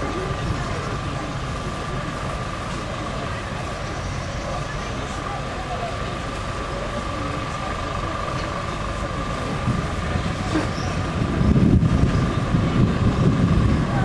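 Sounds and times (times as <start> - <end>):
low thunder rumbling: 9.4 - 14.0.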